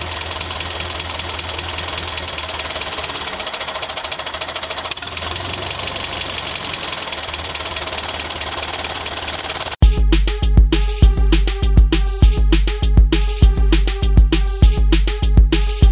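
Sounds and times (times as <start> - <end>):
tractor engine running: 0.0 - 10.0.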